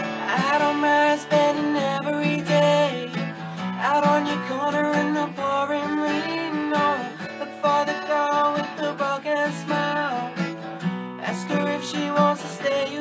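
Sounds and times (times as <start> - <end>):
acoustic guitar strumming: 0.0 - 13.0
young man singing: 0.0 - 13.0.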